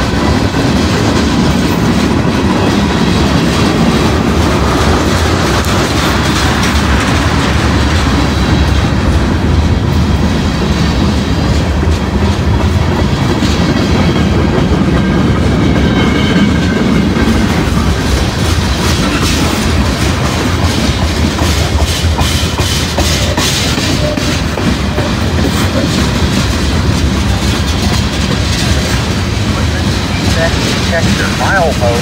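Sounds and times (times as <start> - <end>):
train wheels rumbling on rails: 0.0 - 32.0
wheels clicking over rail joints: 11.0 - 32.0.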